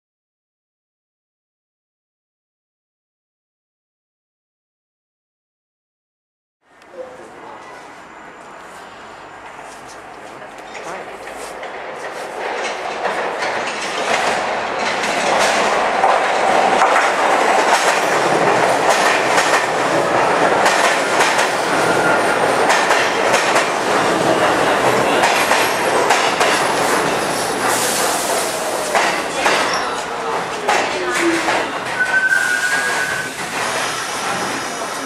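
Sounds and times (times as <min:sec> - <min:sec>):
subway train running past: 0:06.6 - 0:35.0
wheels clacking over rail joints: 0:10.1 - 0:32.3
faint high squeal: 0:32.0 - 0:33.4.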